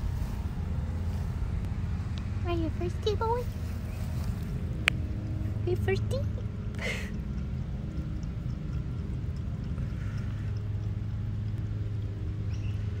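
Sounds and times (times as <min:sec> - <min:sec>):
low rumble: 0:00.0 - 0:13.0
cat lapping water: 0:04.5 - 0:11.6
faint small ticks: 0:07.1 - 0:11.7.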